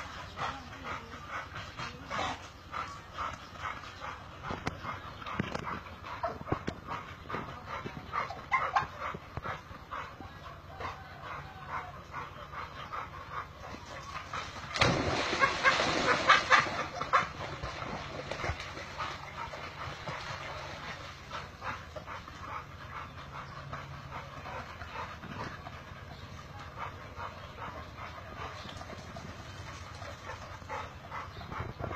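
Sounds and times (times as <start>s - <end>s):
dogs yipping and whimpering: 8.2s - 13.4s.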